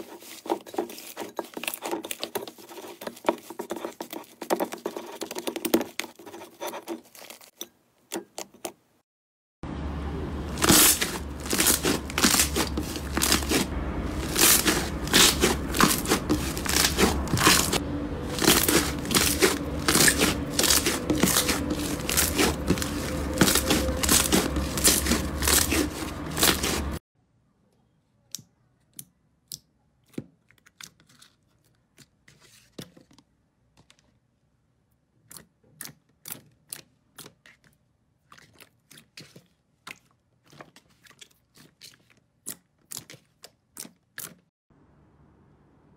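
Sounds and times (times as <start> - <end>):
slime crackling and tearing: 10.6 - 27.0.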